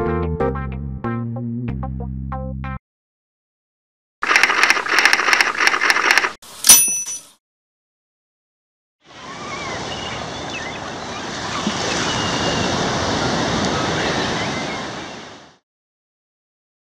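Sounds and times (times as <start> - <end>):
faint high gliding calls: 9.1 - 12.8
ocean surf washing in: 9.1 - 15.6.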